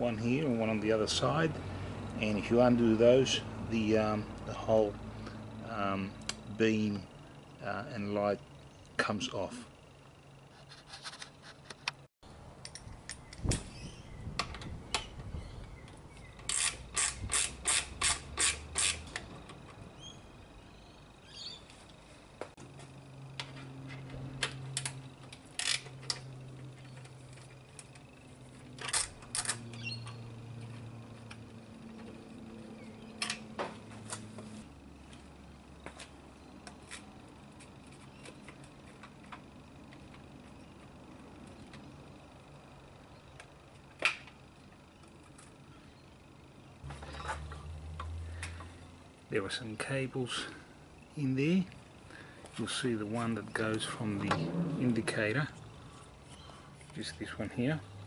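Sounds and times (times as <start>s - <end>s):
faint steady hum: 0.0s - 58.0s
ratchet clicking: 16.3s - 19.3s, 24.4s - 30.3s.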